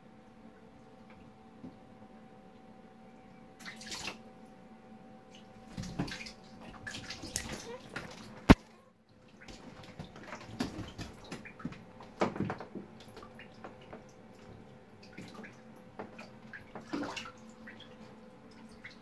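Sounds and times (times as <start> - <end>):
water splashing in a bathtub: 3.5 - 4.3, 5.2 - 19.0.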